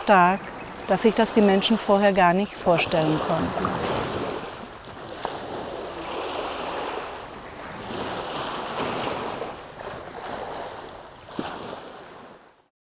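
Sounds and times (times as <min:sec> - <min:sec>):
waves washing over pebbles: 0:02.4 - 0:12.4.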